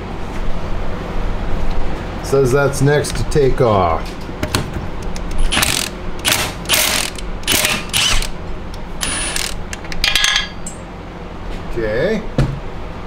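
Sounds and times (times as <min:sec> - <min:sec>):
hand ratchet clicking: 0:05.0 - 0:08.3, 0:09.0 - 0:10.0.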